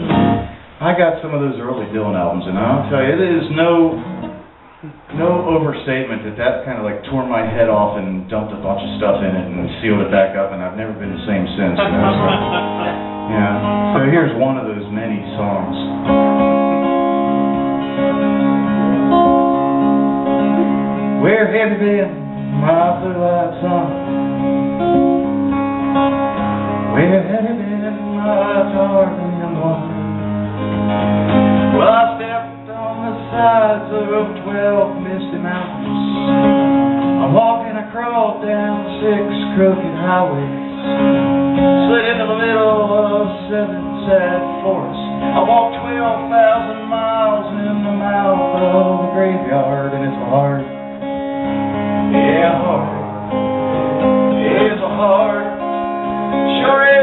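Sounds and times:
acoustic guitar strumming: 0:00.0 - 0:57.0
man singing: 0:04.8 - 0:16.0, 0:20.4 - 0:24.5, 0:26.9 - 0:30.2, 0:31.7 - 0:50.8, 0:52.1 - 0:53.2, 0:54.3 - 0:57.0.

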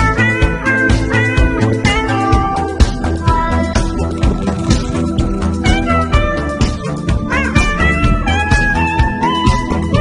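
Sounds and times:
drum beat and bass: 0:01.8 - 0:07.8.

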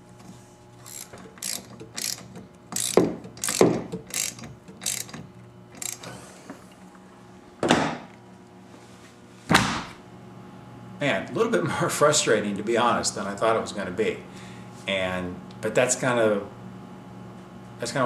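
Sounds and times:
ratchet wrench clicking: 0:00.8 - 0:06.1.

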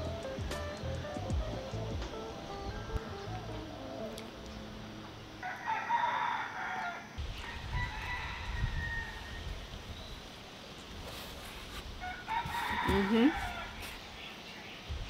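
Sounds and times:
rooster crowing: 0:05.4 - 0:09.6, 0:12.0 - 0:13.9.

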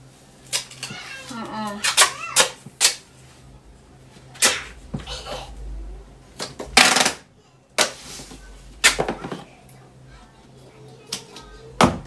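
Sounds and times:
duct tape ripping off roll: 0:01.7 - 0:03.0, 0:06.8 - 0:07.2.

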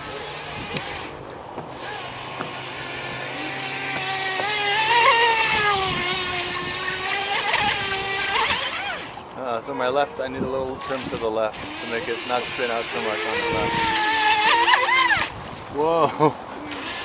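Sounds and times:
model boat motor whining: 0:00.0 - 0:16.0, 0:16.6 - 0:17.0.

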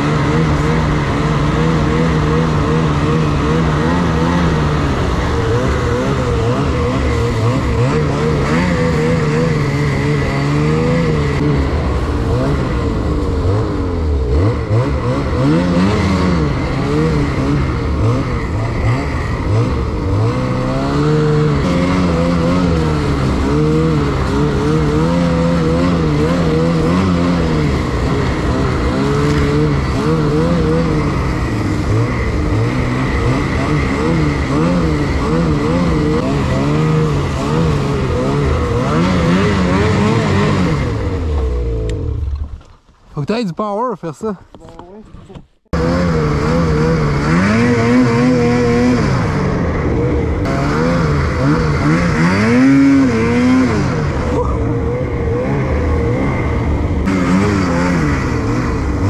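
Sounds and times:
snowmobile engine revving: 0:00.0 - 0:42.5, 0:43.2 - 0:59.0.

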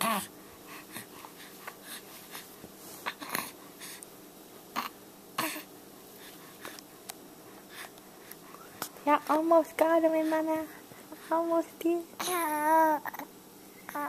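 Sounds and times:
baby grunting: 0:04.7 - 0:05.7.

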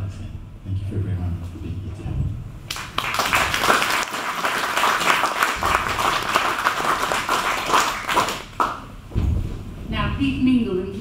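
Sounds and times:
audience applauding: 0:02.7 - 0:09.0.

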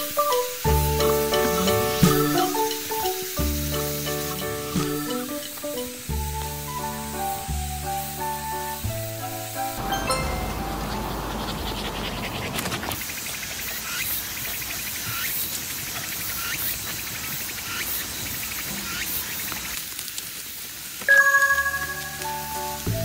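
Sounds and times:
steady hiss: 0:00.0 - 0:12.0, 0:12.6 - 0:23.0
insects chirping: 0:09.8 - 0:19.8.

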